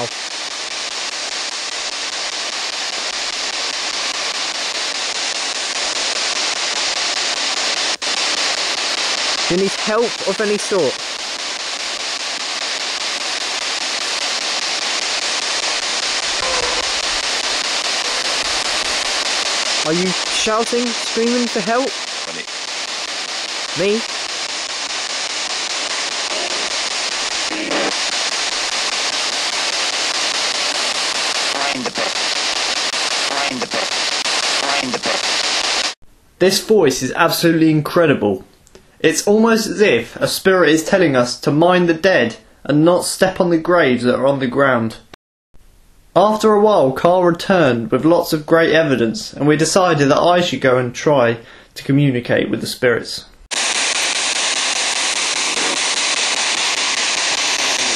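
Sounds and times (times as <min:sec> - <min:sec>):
radio static hiss: 0:00.0 - 0:38.0, 0:53.5 - 0:57.9.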